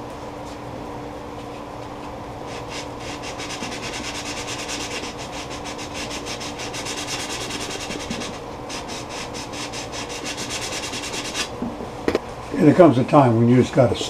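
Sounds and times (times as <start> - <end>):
sandpaper rubbing on wood: 2.5 - 11.5.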